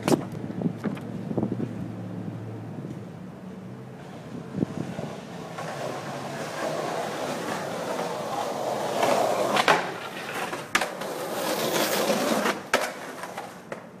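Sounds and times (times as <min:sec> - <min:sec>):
skateboard wheels rolling on concrete: 0:00.0 - 0:14.0
skateboard clacking on ground: 0:04.0 - 0:14.0.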